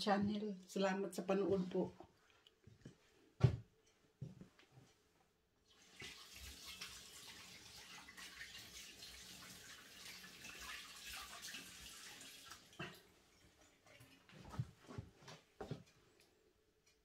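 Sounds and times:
faint running water: 0:05.6 - 0:16.4.

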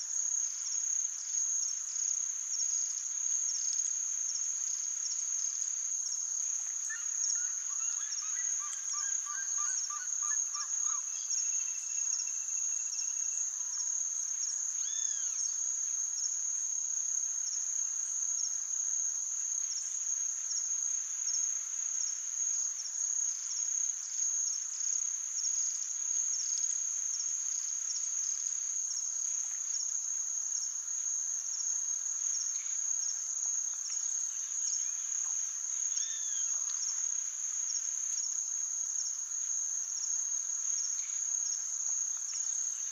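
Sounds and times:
insects trilling: 0:06.8 - 0:14.0, 0:14.8 - 0:15.4, 0:34.2 - 0:37.2.

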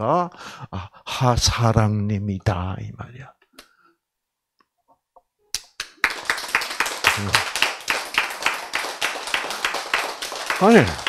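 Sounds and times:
audience applause: 0:05.8 - 0:11.0.

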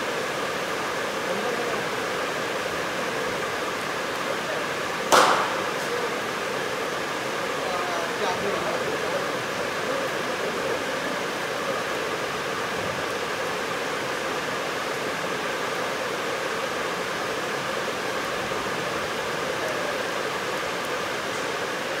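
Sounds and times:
steady rushing noise: 0:05.1 - 0:06.8.

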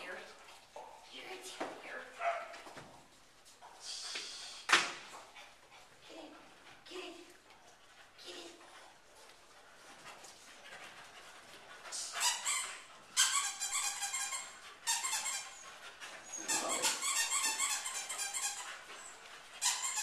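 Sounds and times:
small dogs yipping and whining: 0:12.2 - 0:20.0.

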